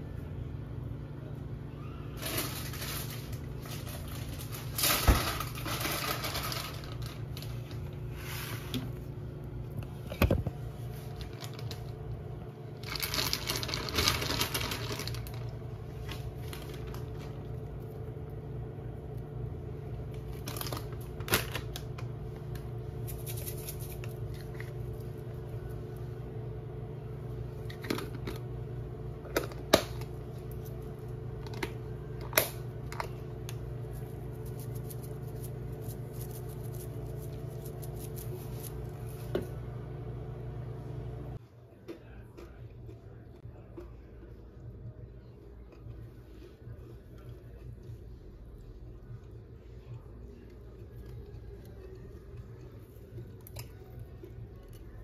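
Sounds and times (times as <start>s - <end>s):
steady low hum: 0.0s - 55.0s
cheese sprinkled by hand: 22.9s - 25.8s, 33.5s - 39.3s.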